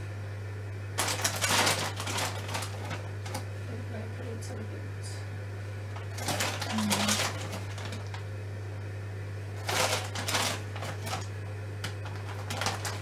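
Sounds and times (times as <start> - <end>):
steady low hum: 0.0 - 13.0
plastic bag crinkling: 1.0 - 3.5, 5.9 - 8.3, 9.6 - 13.0.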